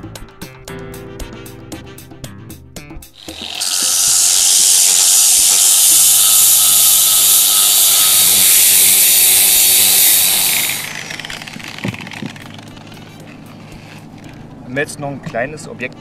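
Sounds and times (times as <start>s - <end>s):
angle grinder sanding paint: 3.2s - 14.4s.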